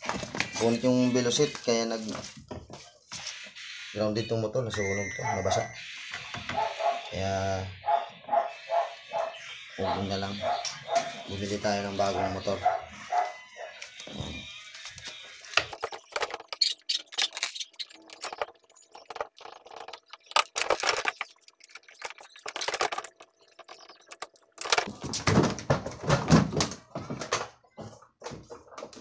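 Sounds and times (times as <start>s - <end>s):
plastic and metal parts clattering: 14.1s - 29.0s.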